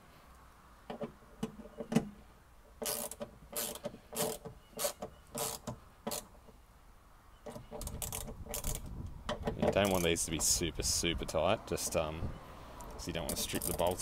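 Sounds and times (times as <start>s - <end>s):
socket ratchet clicking: 7.8s - 10.1s.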